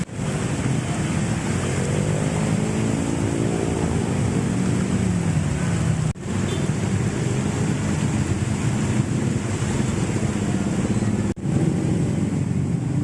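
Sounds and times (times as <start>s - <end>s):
floodwater gushing and splashing: 0.0s - 13.0s.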